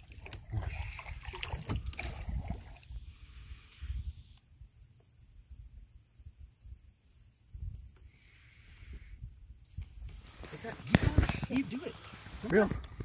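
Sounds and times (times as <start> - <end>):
cricket chirping: 2.0 - 11.7.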